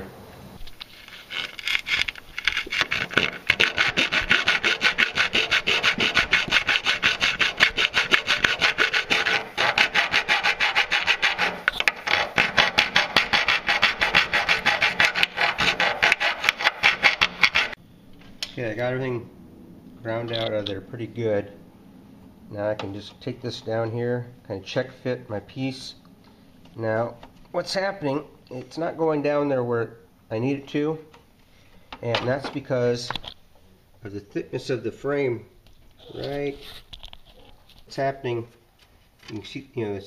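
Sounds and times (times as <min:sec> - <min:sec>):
hand file rasping on steel: 0:01.1 - 0:17.8.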